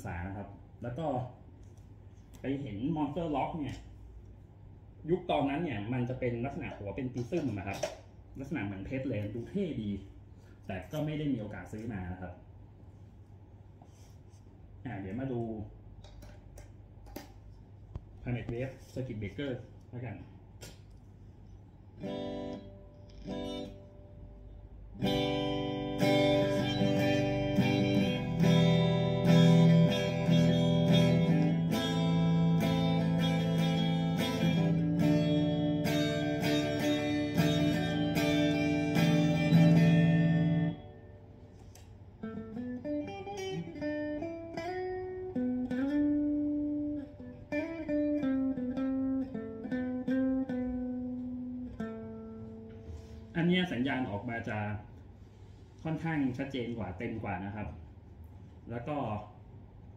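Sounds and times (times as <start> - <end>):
electric guitar through amp: 25.0 - 41.2.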